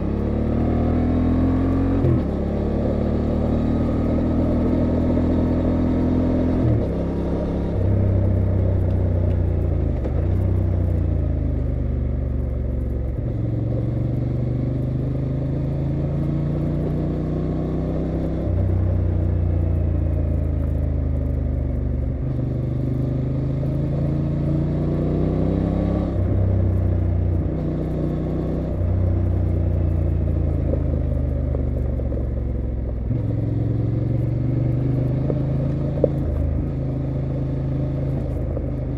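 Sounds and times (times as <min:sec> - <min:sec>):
motorcycle engine with gear changes: 0:00.0 - 0:38.9.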